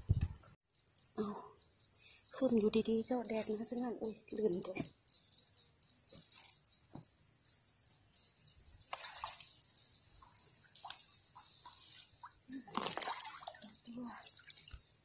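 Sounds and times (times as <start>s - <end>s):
steady high chirping: 0.6s - 8.9s, 9.5s - 12.7s
water dripping and trickling: 8.8s - 15.0s
water splashes: 8.9s - 15.0s.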